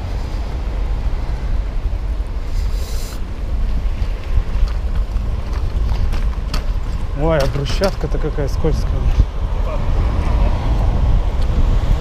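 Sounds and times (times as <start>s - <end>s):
wind on microphone: 0.0s - 12.0s
brief hiss: 2.5s - 3.3s.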